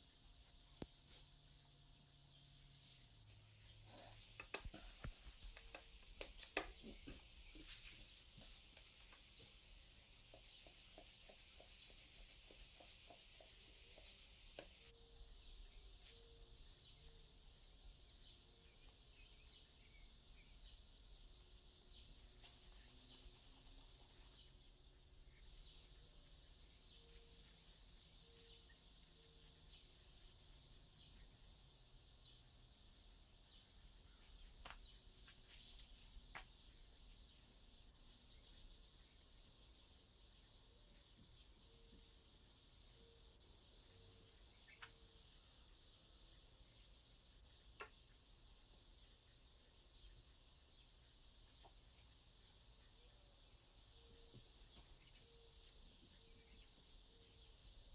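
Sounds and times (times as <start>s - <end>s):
rolling pin rubbing over dough: 6.8s - 14.9s.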